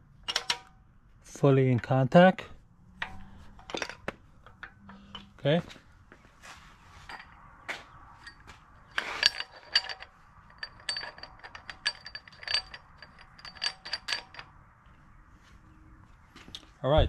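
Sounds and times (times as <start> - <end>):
metal clicks and clinks: 0.2 - 0.8, 3.0 - 5.5, 7.1 - 7.4, 8.2 - 14.6.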